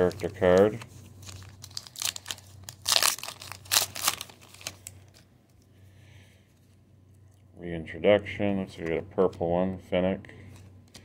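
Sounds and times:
foil wrapper crinkling: 0.0 - 5.3.

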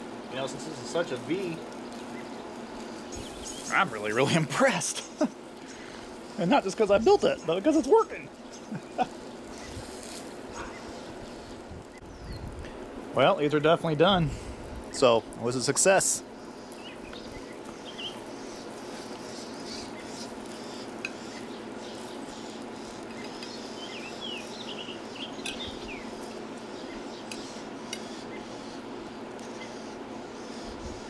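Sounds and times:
grill sizzling: 0.0 - 31.0
metal spatula scraping grill grate: 9.5 - 11.1, 18.4 - 24.6.

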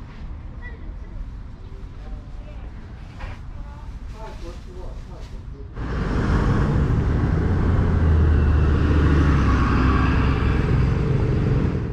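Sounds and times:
road noise: 0.0 - 11.9
bus engine passing: 5.7 - 11.9.

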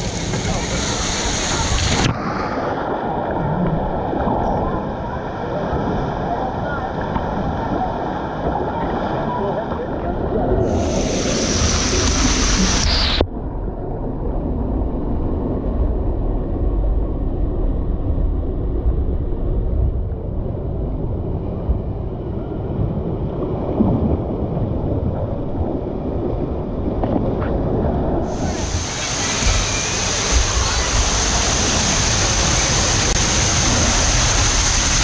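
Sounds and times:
water rushing through tube: 0.0 - 13.3, 28.1 - 35.0
muffled rumble of sliding water: 0.0 - 35.0.

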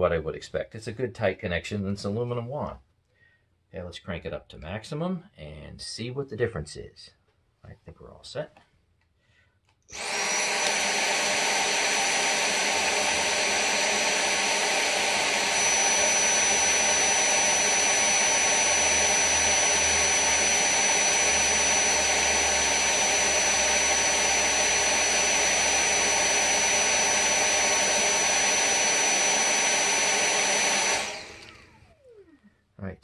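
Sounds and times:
vacuum motor whining: 9.9 - 32.5.

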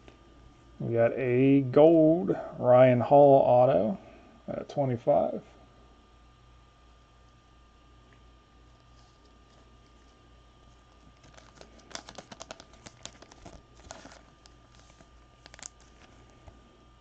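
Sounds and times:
faint steady hum: 0.0 - 17.0
trading cards clicking and rustling: 11.0 - 16.5.

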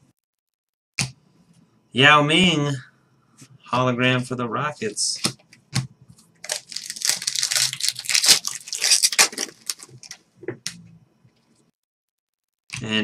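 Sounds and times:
foil wrapper tearing and crinkling: 6.4 - 10.2.

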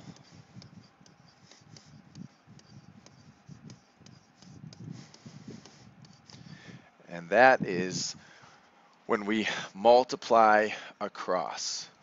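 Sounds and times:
stylus scratching on tablet: 0.0 - 6.7.

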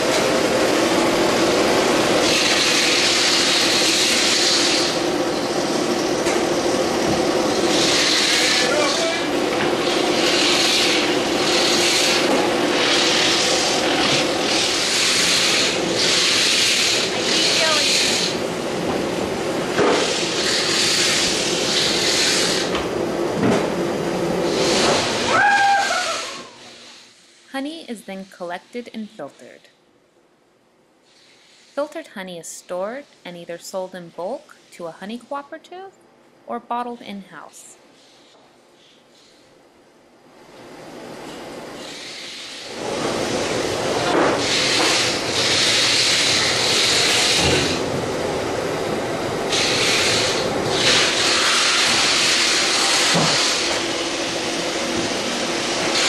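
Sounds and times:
loud machinery running: 0.0 - 25.4, 42.7 - 56.0
machinery hissing: 0.3 - 18.8, 19.6 - 22.8, 24.4 - 27.7, 41.7 - 56.0.

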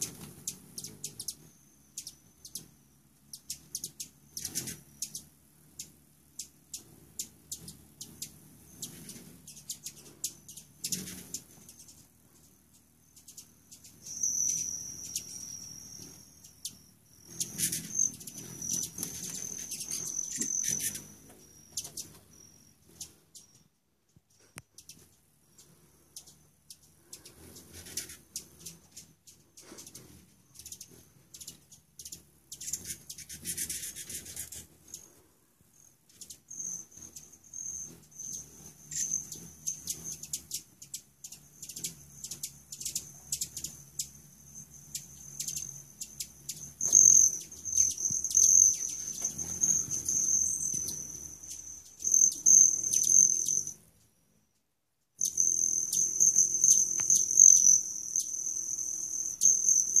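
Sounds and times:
hummingbird metallic wing trill: 0.0 - 23.8, 24.8 - 53.9, 55.2 - 60.0
sharp bird chip notes: 13.2 - 16.5.

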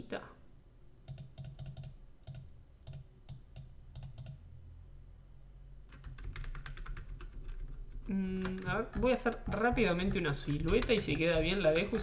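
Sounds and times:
computer mouse clicks: 1.1 - 4.4.

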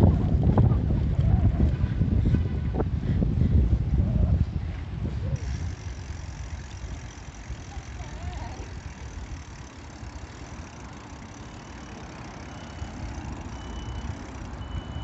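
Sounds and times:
wind rumble on microphone: 0.0 - 9.7
bicycle tyres on brick paving: 0.0 - 15.0.

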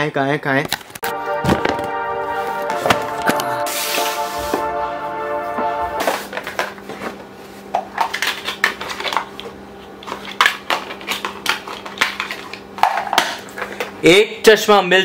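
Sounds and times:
low steady hum: 1.0 - 7.4.

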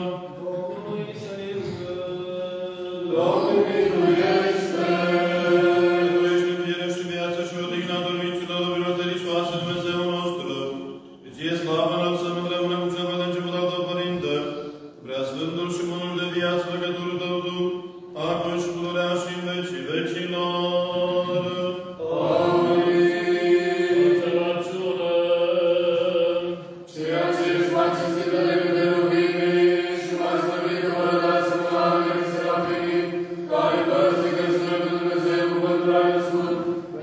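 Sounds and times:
slow liturgical chanting: 0.0 - 37.0.

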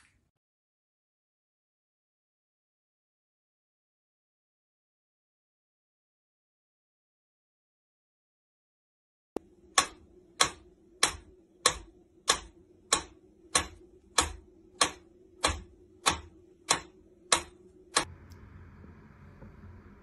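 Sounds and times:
faint steady hiss: 9.4 - 20.0
metronome ticking: 9.7 - 18.1.

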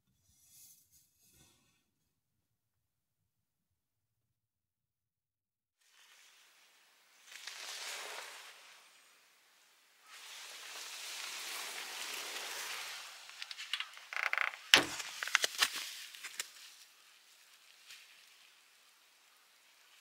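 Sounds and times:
clicks and knocks: 13.4 - 15.6.

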